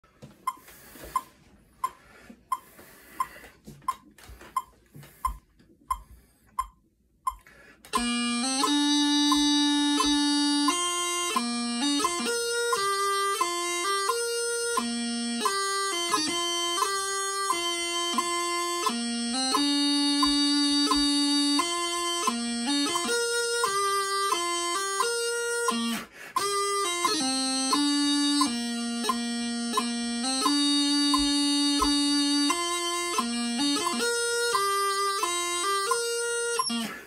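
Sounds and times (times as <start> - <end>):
metronome ticking: 0.0 - 37.0
practice chanter playing march: 7.9 - 37.0.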